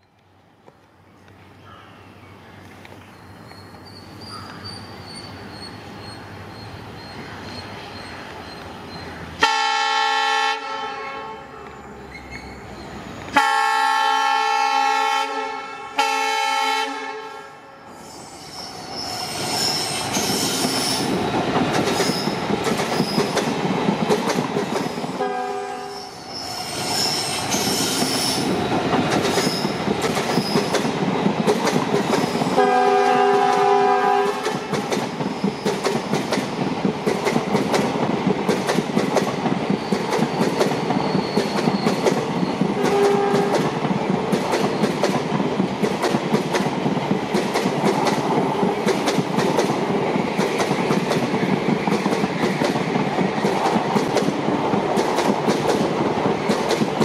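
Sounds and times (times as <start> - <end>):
locomotive horn blasts: 9.4 - 11.8, 13.4 - 17.8, 25.2 - 26.1, 32.6 - 34.6, 42.8 - 43.6
train wheels clattering on rails: 19.3 - 25.3, 26.7 - 57.0.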